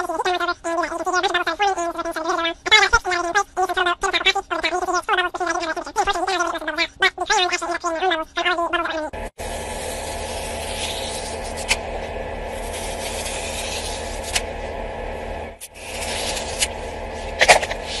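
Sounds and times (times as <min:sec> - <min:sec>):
blade cutting through thread: 0:09.4 - 0:14.6, 0:15.6 - 0:18.0.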